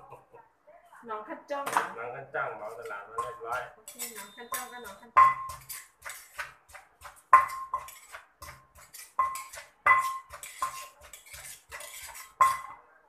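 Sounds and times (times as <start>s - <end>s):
pestle pounding in mortar: 3.2s - 12.7s.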